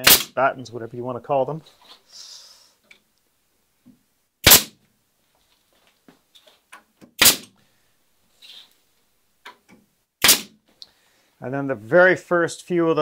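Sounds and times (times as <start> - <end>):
pneumatic nail gun shots: 0.0 - 0.4, 4.4 - 4.8, 7.2 - 7.5, 10.2 - 10.6.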